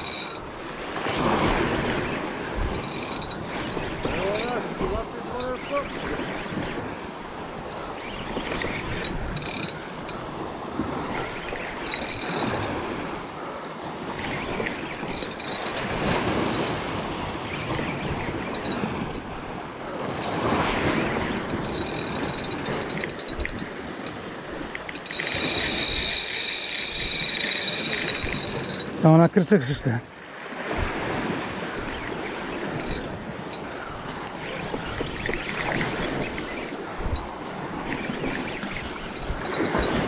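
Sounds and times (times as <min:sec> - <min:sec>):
fishing reel clicking: 0:00.0 - 0:01.6, 0:02.6 - 0:06.2, 0:08.2 - 0:10.3, 0:11.2 - 0:12.8, 0:14.4 - 0:16.9, 0:17.5 - 0:19.3, 0:20.2 - 0:29.0, 0:32.0 - 0:33.7, 0:34.3 - 0:40.0
surf washing against rocks: 0:00.0 - 0:07.8, 0:08.6 - 0:40.0
reel drag buzzing: 0:00.0 - 0:13.4, 0:14.0 - 0:29.1, 0:30.8 - 0:40.0
wind on microphone: 0:30.5 - 0:40.0.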